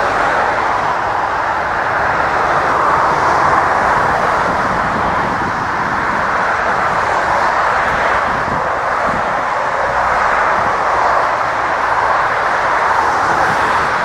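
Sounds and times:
jet engines running: 0:00.0 - 0:14.0.

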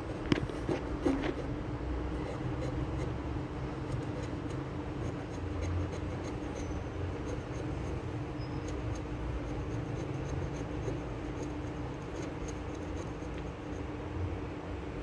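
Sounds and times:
steady low hum: 0:00.0 - 0:15.0
pencil scraping on steel blade: 0:00.8 - 0:01.5, 0:03.8 - 0:13.9.

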